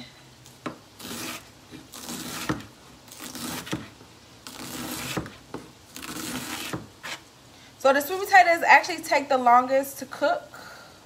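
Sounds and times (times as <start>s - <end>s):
knife slicing cabbage: 0.7s - 7.3s.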